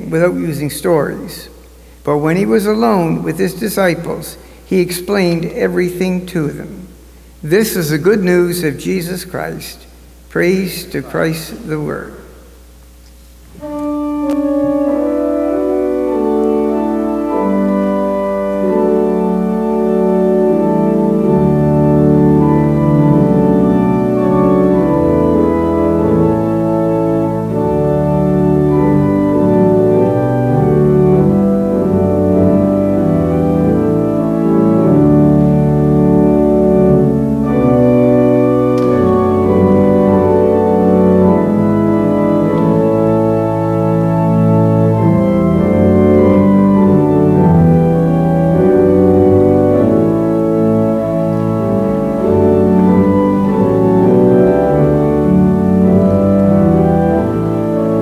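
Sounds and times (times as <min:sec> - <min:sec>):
organ playing sustained chords: 0:00.0 - 0:58.0
deep bass pedal notes: 0:13.6 - 0:58.0.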